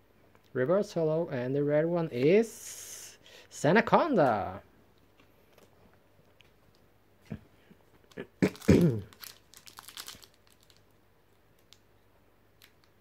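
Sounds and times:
foil wrapper crinkling and tearing: 8.0s - 11.0s.

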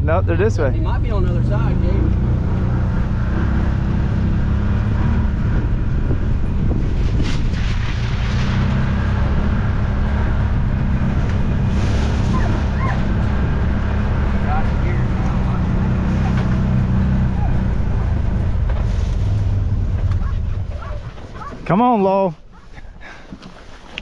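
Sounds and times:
utility vehicle engine running: 0.0s - 21.6s.

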